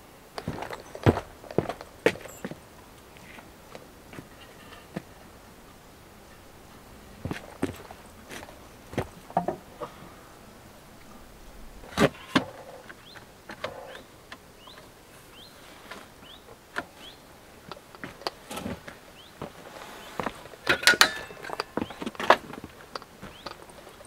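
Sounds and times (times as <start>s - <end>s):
bar clamps and wood knocking: 9.3s - 9.7s, 20.2s - 24.0s.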